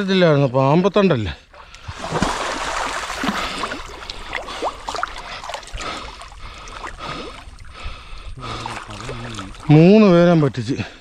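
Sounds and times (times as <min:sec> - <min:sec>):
water sloshing and splashing: 0:01.5 - 0:10.1.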